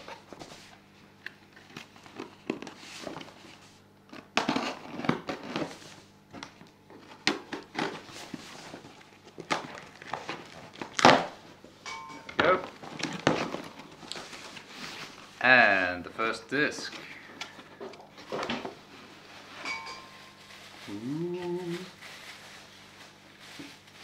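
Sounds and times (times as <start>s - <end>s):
knife cutting packing tape: 4.1s - 5.8s.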